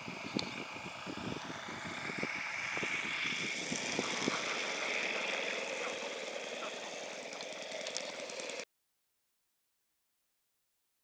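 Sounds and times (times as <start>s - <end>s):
model airplane engine and propeller: 0.0s - 8.7s.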